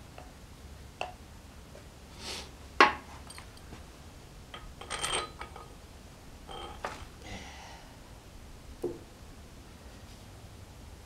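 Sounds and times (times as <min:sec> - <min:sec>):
metal bolts clicking and clinking: 0:03.2 - 0:03.7, 0:04.5 - 0:05.7, 0:06.5 - 0:07.1.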